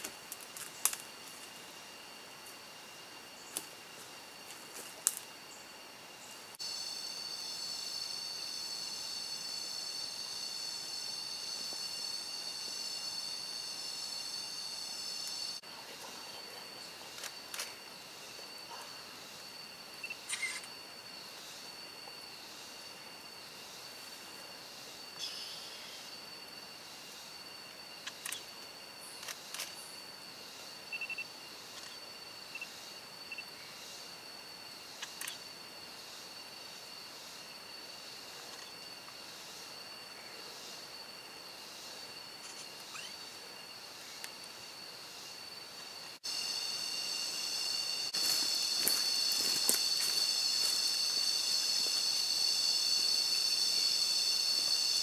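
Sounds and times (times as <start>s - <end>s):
sharp insect clicks: 0.0s - 1.2s, 4.8s - 5.3s, 17.1s - 17.9s, 20.0s - 20.8s, 27.9s - 29.9s, 34.9s - 35.5s
insects trilling: 0.0s - 55.0s.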